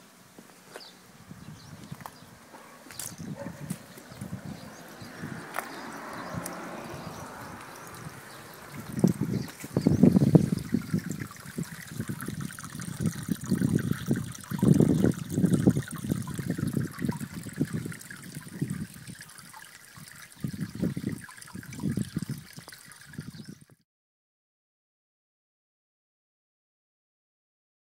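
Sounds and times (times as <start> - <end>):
water pouring into a basin: 4.6 - 23.8.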